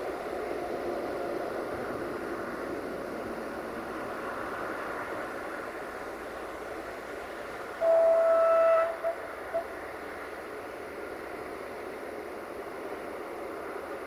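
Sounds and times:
steady hiss: 0.0 - 14.0
train horn: 7.8 - 9.8.

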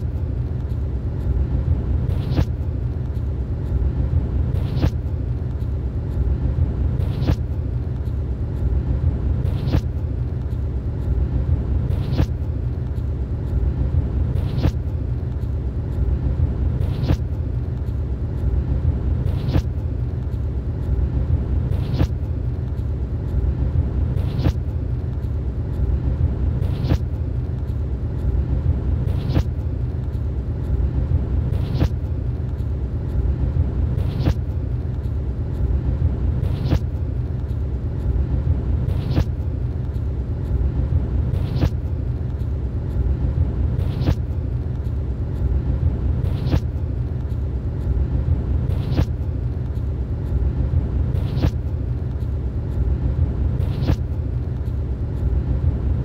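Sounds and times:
vehicle rumble from inside: 0.0 - 56.0.

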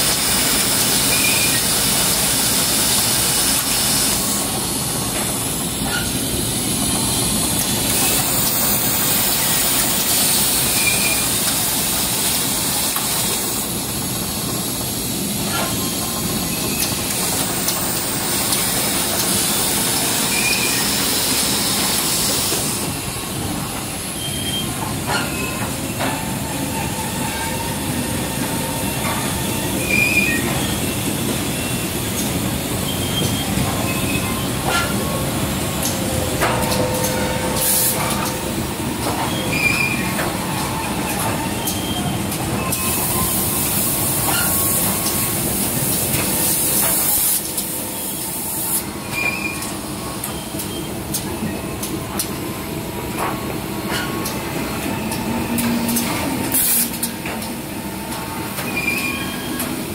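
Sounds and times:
production line machinery din: 0.0 - 59.9.

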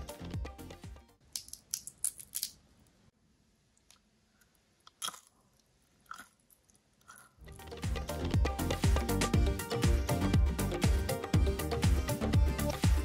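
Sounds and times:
music: 0.0 - 1.2, 7.4 - 13.0.

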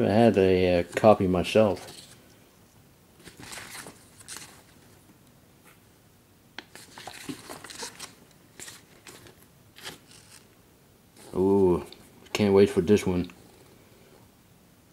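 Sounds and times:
magazine pages flipping: 0.8 - 2.2, 3.2 - 5.0, 6.6 - 10.5.

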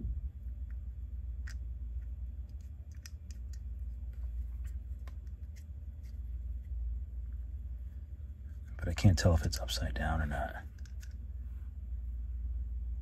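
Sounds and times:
steady low hum: 0.0 - 13.0
plastic parts clicking together: 10.7 - 11.2.

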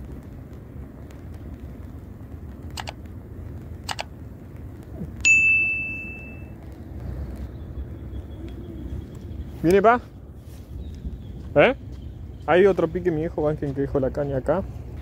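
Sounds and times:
small bell ringing: 5.2 - 6.6.

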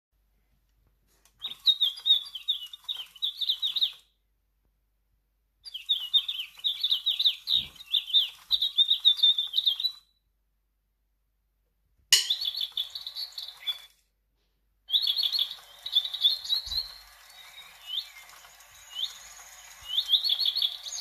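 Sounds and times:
toy bird chirping through speaker: 1.4 - 4.1, 5.6 - 10.1, 12.2 - 14.0, 14.9 - 21.0.

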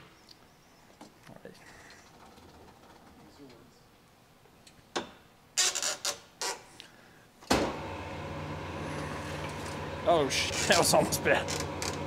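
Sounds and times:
honing machine humming: 7.8 - 12.0.

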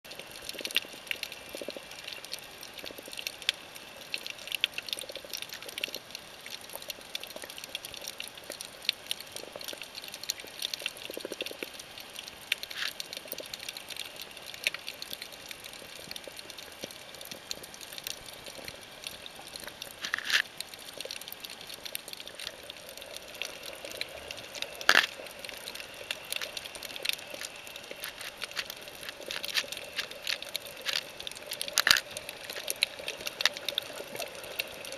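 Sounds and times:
water hiss: 12.0 - 34.9
underwater clicks crackling: 12.5 - 34.9.

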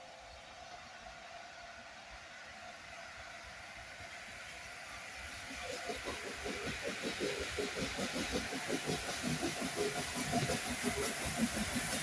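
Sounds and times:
steam hiss: 1.3 - 12.0
steam locomotive exhaust beats: 2.0 - 12.0.

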